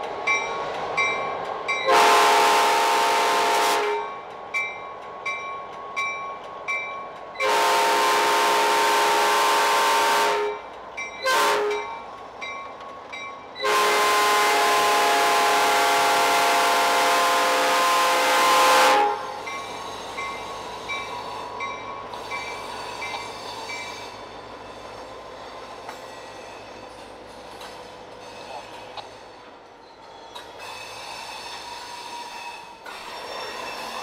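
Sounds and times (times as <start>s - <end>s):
train running noise: 0.0s - 34.0s
train horn chord: 1.9s - 4.2s, 7.4s - 10.6s, 11.2s - 11.9s, 13.6s - 19.4s.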